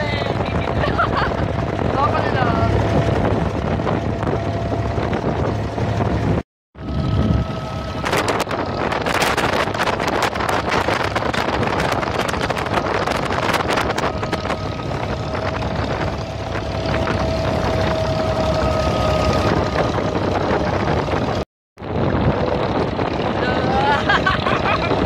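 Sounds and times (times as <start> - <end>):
boat engine running: 0.0 - 25.0
wind buffeting microphone: 0.0 - 25.0.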